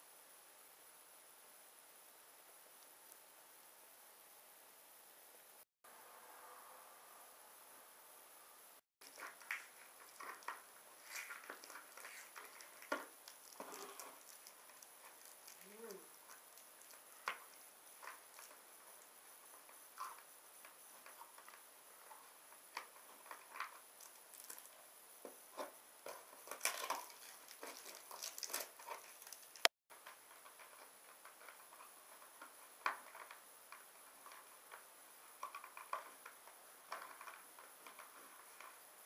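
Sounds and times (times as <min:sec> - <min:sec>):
packing tape crinkling and peeling: 0:09.0 - 0:21.6, 0:22.7 - 0:24.8, 0:26.1 - 0:29.7.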